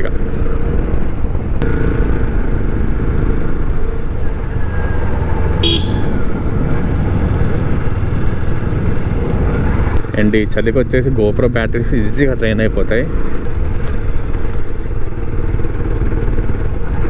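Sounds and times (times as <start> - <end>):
motorcycle engine running: 0.0 - 11.0, 12.4 - 17.0
wind rumble on microphone: 2.8 - 10.2
horn toot: 5.6 - 6.2.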